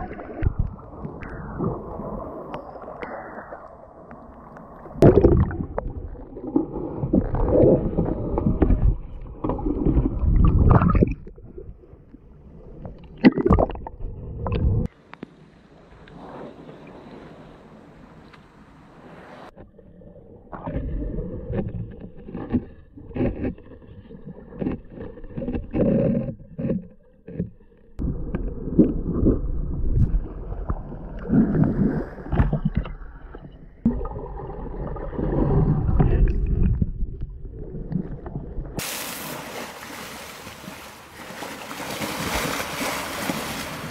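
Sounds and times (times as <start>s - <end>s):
water sloshing and splashing: 0.0s - 14.9s, 29.1s - 43.9s.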